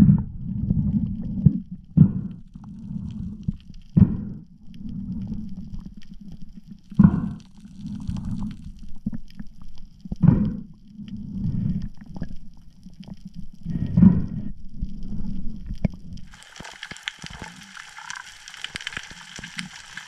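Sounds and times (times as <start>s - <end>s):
breathing through a snorkel: 2.0s - 5.6s, 7.0s - 8.6s, 10.2s - 12.0s, 13.6s - 15.4s
rushing of water: 16.3s - 20.0s.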